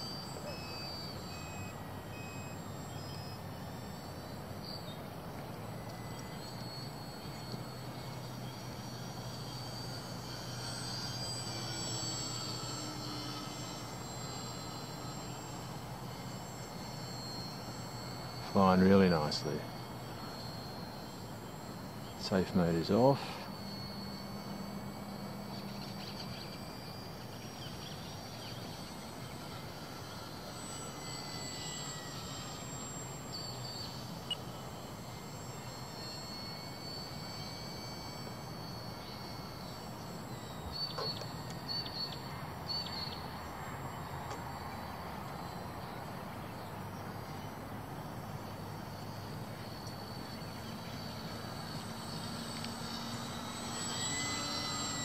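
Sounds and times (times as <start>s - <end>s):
distant rc plane motor whine: 0.0s - 55.0s
outdoor background noise: 0.0s - 55.0s.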